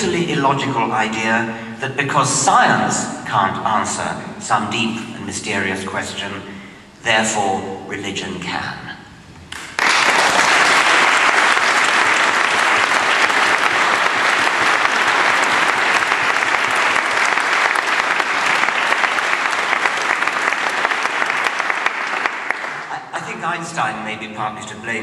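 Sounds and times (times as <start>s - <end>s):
audience applauding: 9.6s - 23.4s.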